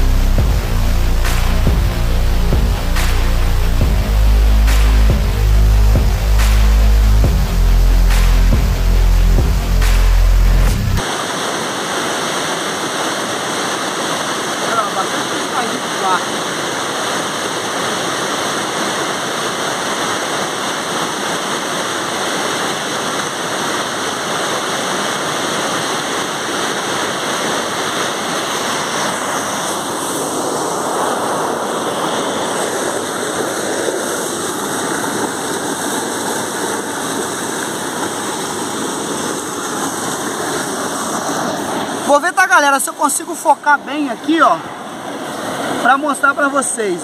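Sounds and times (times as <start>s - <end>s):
stream rushing over rocks: 10.9s - 47.0s.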